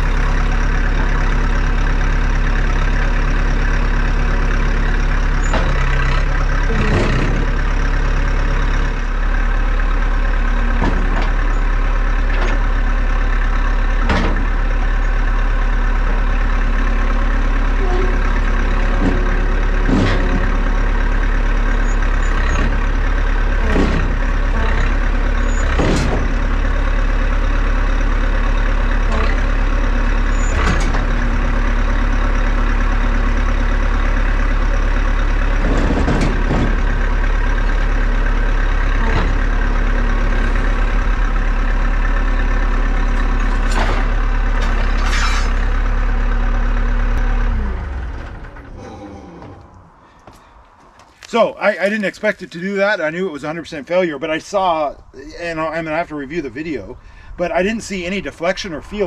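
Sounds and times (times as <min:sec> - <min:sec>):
diesel engine under load: 0:00.0 - 0:59.0
sharp metal knocks and clanks: 0:14.0 - 0:14.6, 0:23.6 - 0:26.5, 0:35.6 - 0:37.2.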